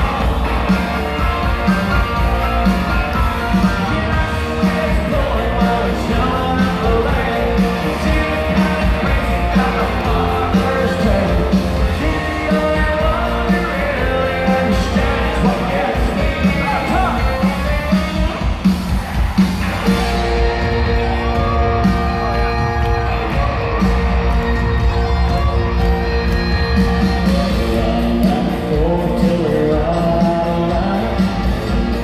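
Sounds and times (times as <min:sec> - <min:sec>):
crowd yelling: 0:00.0 - 0:32.0
live country band with singing: 0:00.0 - 0:32.0.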